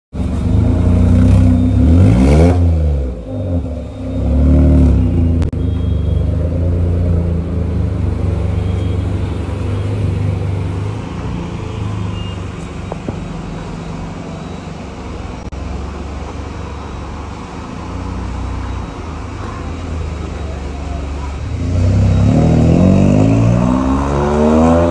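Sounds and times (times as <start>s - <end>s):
car engine revving: 0.3s - 5.5s, 21.3s - 24.9s.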